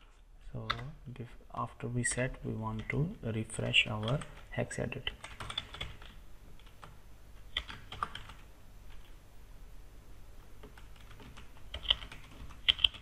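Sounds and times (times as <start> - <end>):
typing on computer keyboard: 4.0 - 9.2, 10.6 - 13.0.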